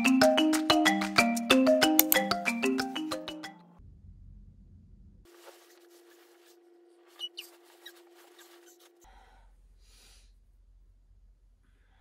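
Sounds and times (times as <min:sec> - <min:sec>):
sharp clicks: 0:01.9 - 0:02.4
low hum: 0:03.6 - 0:05.3, 0:09.1 - 0:12.0
scratchy rubbing and handling noise: 0:05.3 - 0:09.1.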